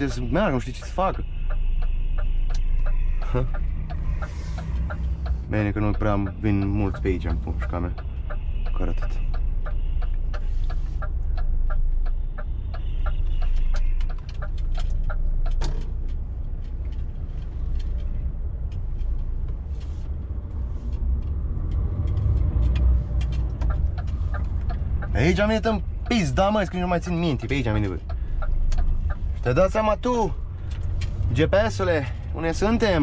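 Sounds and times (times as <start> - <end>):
turn indicator ticking: 0.0 - 33.0.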